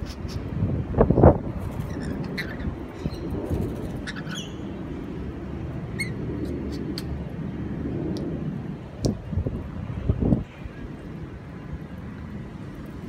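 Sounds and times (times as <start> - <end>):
steady low rumble: 0.4 - 13.0
parrots chirping: 1.8 - 4.7, 5.9 - 7.2.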